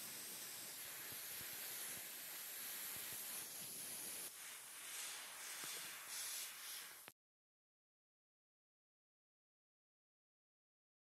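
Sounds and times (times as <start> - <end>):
airbrush spraying hiss: 0.0 - 7.2.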